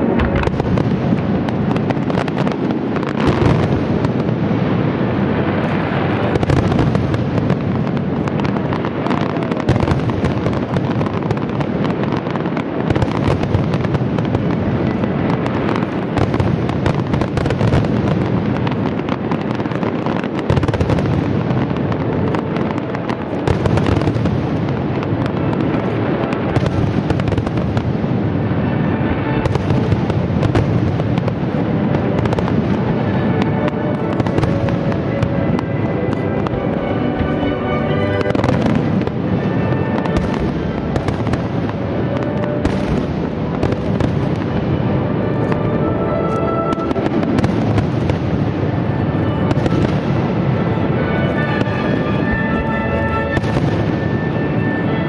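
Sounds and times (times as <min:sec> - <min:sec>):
fireworks bursting and crackling: 0:00.0 - 0:55.0
music playing: 0:21.5 - 0:55.0.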